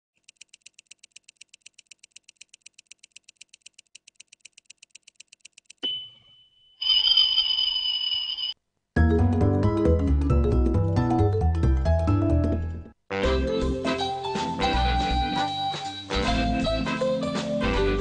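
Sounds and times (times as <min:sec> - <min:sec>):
kitchen timer ticking: 0:00.2 - 0:06.1
timer bell ringing: 0:05.8 - 0:08.6.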